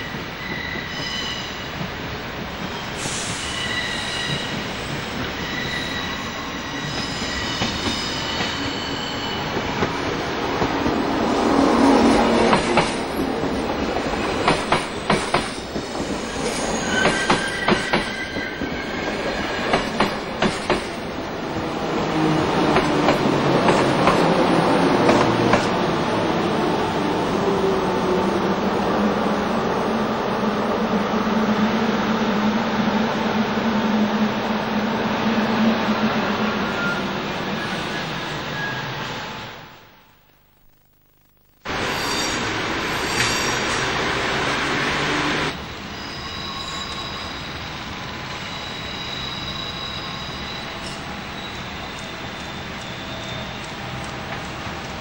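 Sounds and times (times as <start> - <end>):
faint high squeal: 0.0 - 1.8, 2.7 - 9.7, 15.5 - 20.2, 35.9 - 39.8, 41.7 - 43.9, 45.8 - 54.0
train rumbling: 0.0 - 39.5
electric locomotive hum: 4.0 - 39.9.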